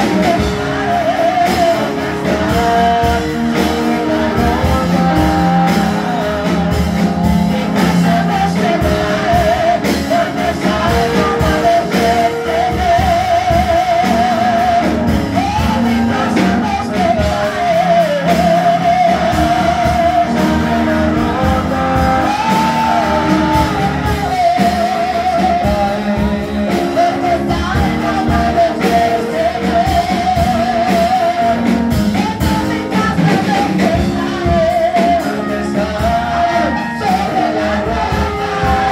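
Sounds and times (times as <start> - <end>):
amplified instrumental accompaniment: 0.0 - 38.9
woman singing into microphone: 31.6 - 38.9.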